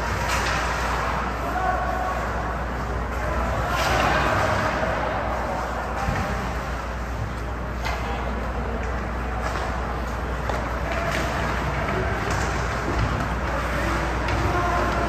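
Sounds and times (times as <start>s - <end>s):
hockey sticks or puck knocking: 5.9s - 15.0s.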